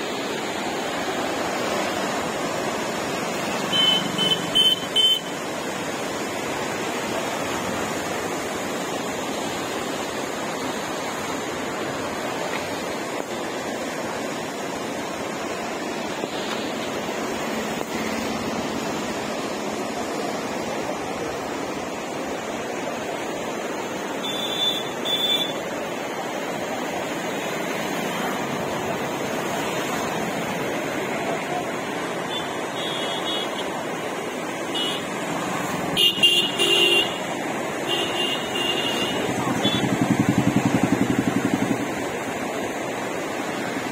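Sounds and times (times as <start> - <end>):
floodwater rushing: 0.0 - 43.9.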